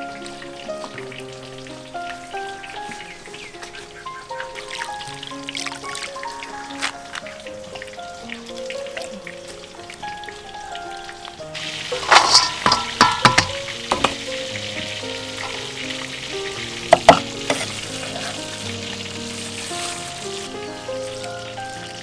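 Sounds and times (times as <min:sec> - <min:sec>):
soft background music: 0:00.0 - 0:22.0
steady hiss: 0:00.0 - 0:22.0
clatters in a steel bowl: 0:11.6 - 0:14.2.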